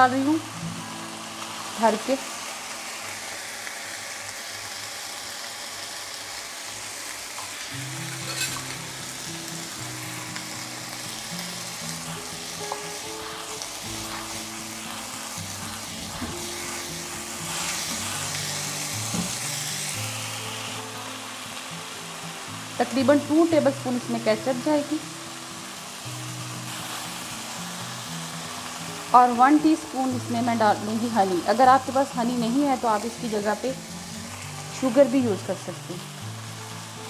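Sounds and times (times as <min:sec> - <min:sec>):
vegetables sizzling in oil: 0:00.0 - 0:37.0
spatula stirring in pan: 0:08.1 - 0:08.7.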